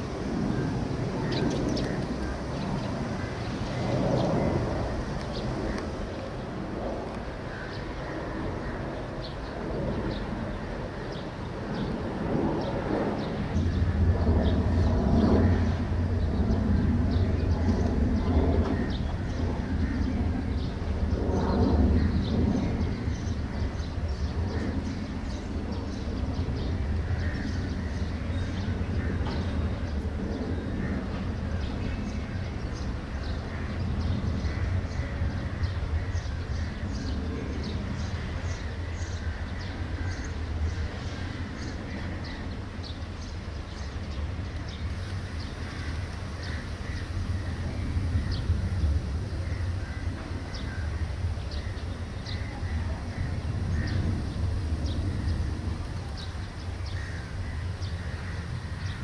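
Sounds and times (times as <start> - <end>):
distant jet engines rumbling: 0.0 - 59.0.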